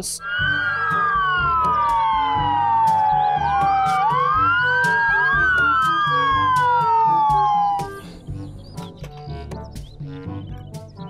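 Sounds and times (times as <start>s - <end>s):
ambulance sirens wailing: 0.2s - 8.5s
music with steady beat: 0.3s - 11.0s.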